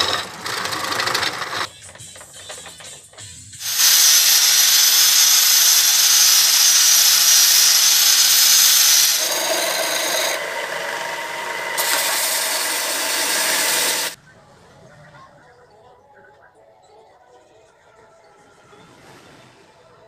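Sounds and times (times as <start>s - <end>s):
angle grinder sanding wood: 0.0s - 1.7s, 3.6s - 14.2s
belt sander sanding wood: 0.0s - 1.7s, 3.6s - 14.2s.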